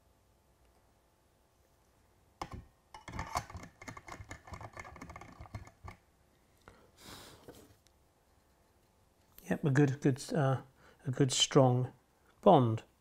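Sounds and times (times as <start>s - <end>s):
small sharp clicks and rattles: 2.4s - 6.0s.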